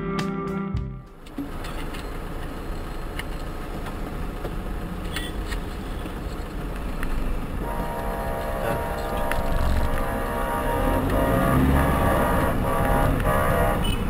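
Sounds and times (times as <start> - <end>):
road and engine noise inside car: 1.2 - 14.0
car horn: 7.6 - 14.0.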